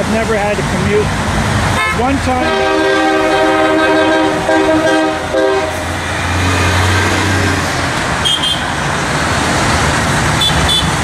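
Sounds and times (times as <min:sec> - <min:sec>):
heavy highway traffic: 0:00.0 - 0:11.0
truck engine drone: 0:00.0 - 0:11.0
truck air horn blast: 0:01.8 - 0:06.0.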